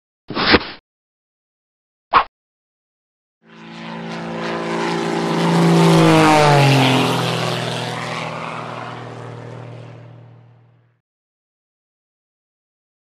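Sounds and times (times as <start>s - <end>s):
airplane flying past: 3.4s - 11.0s.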